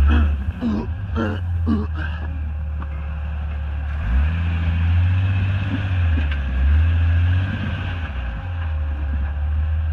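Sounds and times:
engine pulling under load: 0:00.0 - 0:09.9.

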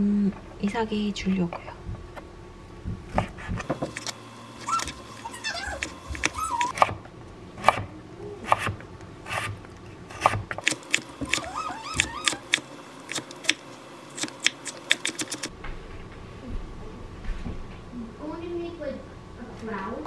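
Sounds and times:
knife chopping on wooden board: 0:07.6 - 0:13.6.

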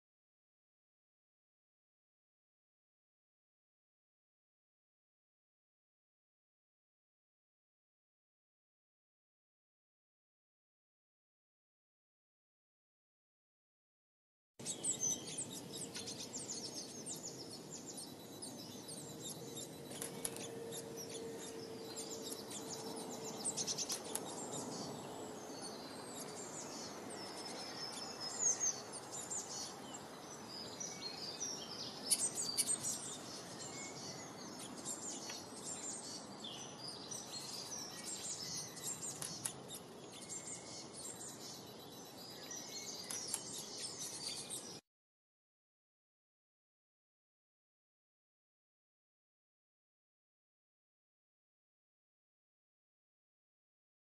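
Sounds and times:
outdoor background noise: 0:14.6 - 0:44.8
songbirds chirping and singing: 0:14.6 - 0:44.8.

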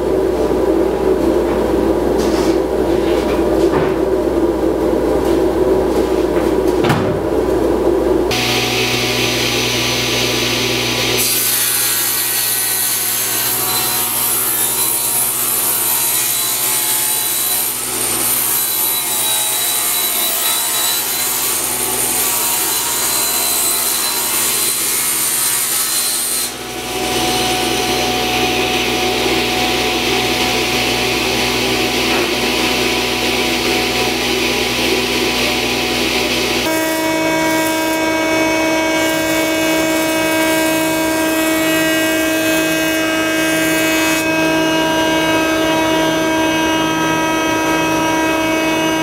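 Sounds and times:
saw motor low hum: 0:08.3 - 0:16.1, 0:26.0 - 0:49.0
table saw blade cutting wood: 0:08.3 - 0:49.0.

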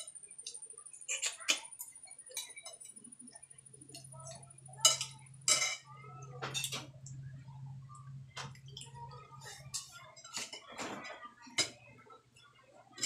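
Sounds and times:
low steady hum: 0:00.0 - 0:13.0
plates and cutlery clinking: 0:01.1 - 0:03.1, 0:03.9 - 0:07.0, 0:08.4 - 0:11.9.

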